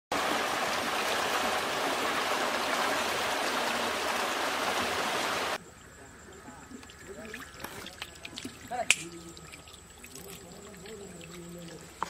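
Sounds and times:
small waterfall splashing: 0.1s - 5.6s.

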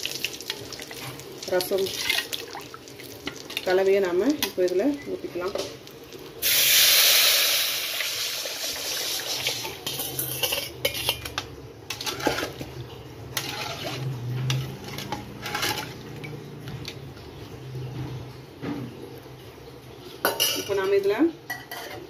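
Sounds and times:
liquid hissing in hot oil: 6.4s - 10.5s.

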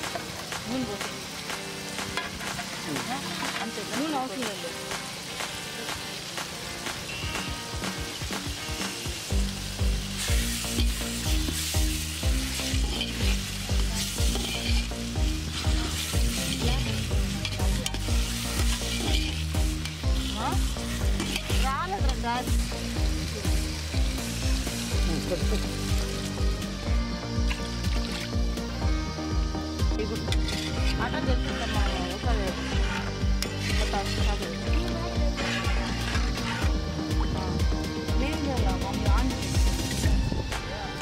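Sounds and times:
background music with beat: 0.0s - 41.0s
food sizzling in metal pot: 0.0s - 41.0s
spoon stirring in pot: 14.0s - 14.9s, 17.4s - 20.3s, 30.3s - 31.0s.

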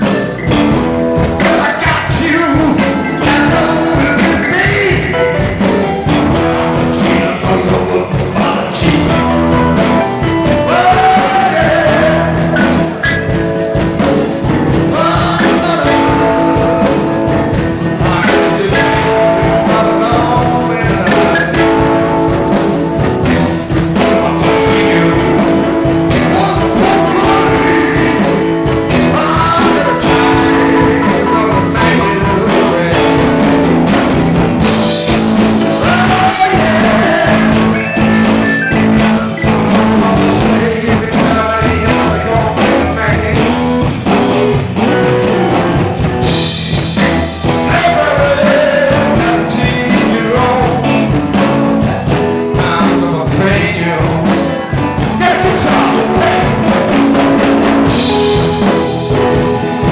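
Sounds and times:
live rock band playing: 0.0s - 59.9s
gliding electric guitar lines: 20.5s - 40.8s, 55.1s - 59.9s.

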